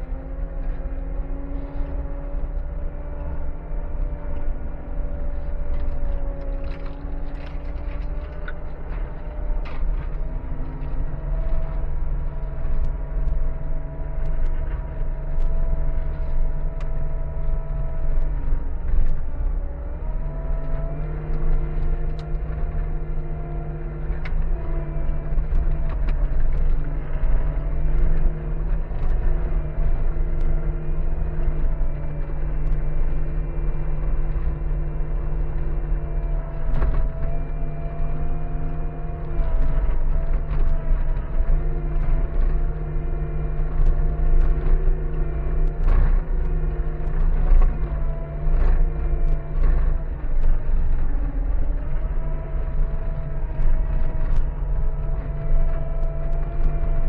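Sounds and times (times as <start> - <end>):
skid steer engine rumbling: 0.0 - 57.0
light rattles and clicks: 0.6 - 57.0.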